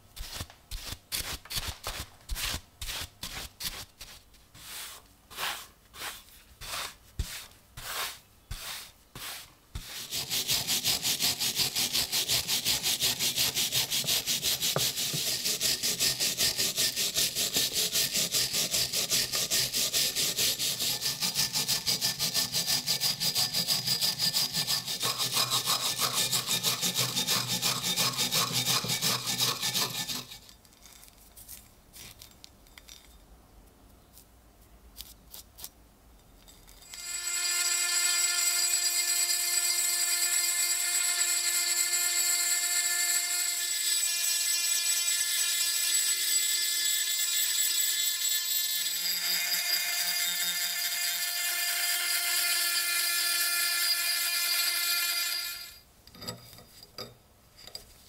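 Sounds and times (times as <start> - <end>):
wire brush scrubbing metal: 4.6 - 30.5
rotary tool whining: 10.0 - 30.5, 36.8 - 55.8.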